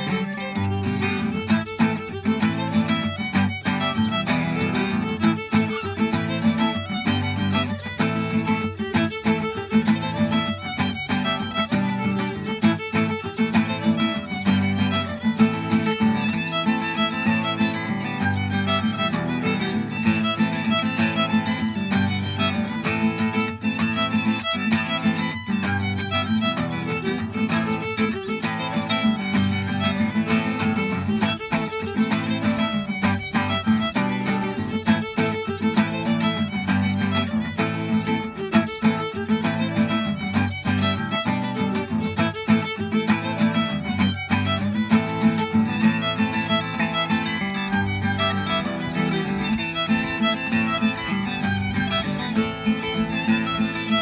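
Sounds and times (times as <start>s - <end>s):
fiddle melody: 0.0s - 54.0s
strummed guitar chords: 0.0s - 54.0s.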